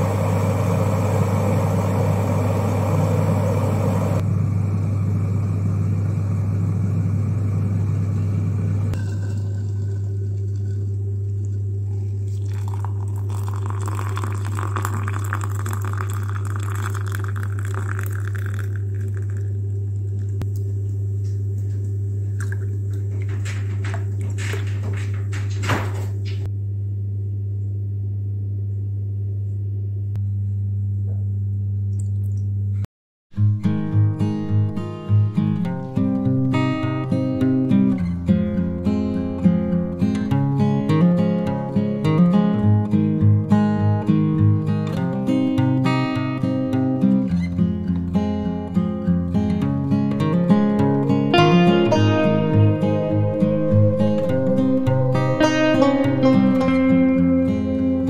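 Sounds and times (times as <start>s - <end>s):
electric kettle boiling: 0.0s - 20.5s
steady low hum: 0.0s - 32.8s, 50.1s - 58.0s
water pouring into a mug: 9.0s - 20.4s.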